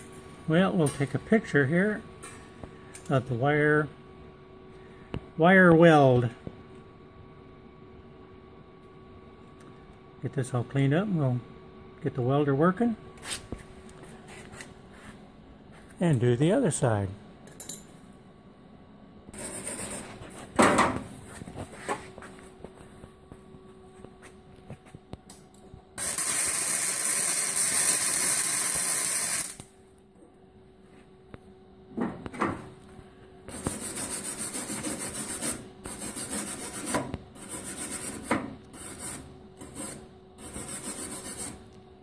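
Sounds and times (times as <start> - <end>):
welder arc crackling and hissing: 26.0 - 29.8.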